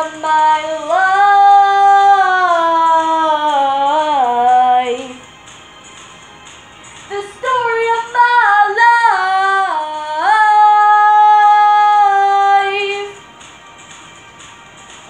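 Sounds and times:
girl singing: 0.0s - 5.2s, 7.1s - 13.2s.

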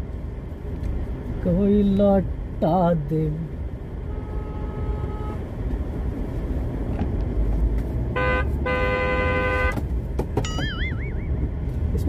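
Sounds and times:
road rumble inside car: 0.0s - 12.0s
car horn honking: 4.0s - 5.4s, 8.1s - 9.8s
warbling high tone: 10.4s - 11.6s.

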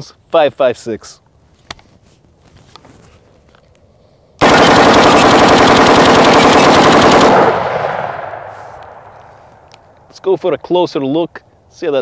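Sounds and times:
rifle firing rapid shots: 4.4s - 9.1s
gunshot echo: 6.4s - 9.8s.

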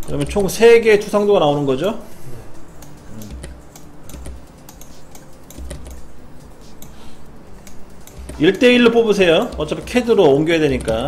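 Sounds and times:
keyboard key clicks: 2.8s - 6.1s.

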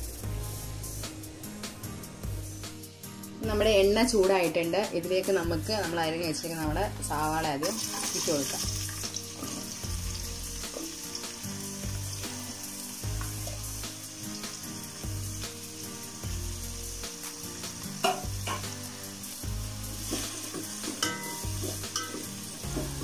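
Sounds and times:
onions sizzling in hot oil: 6.5s - 23.0s.

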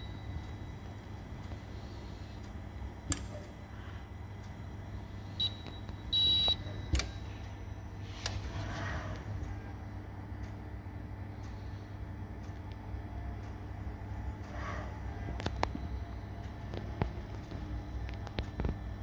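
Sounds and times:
machine humming: 0.0s - 19.0s
sharp mechanical clicks: 5.4s - 7.4s.

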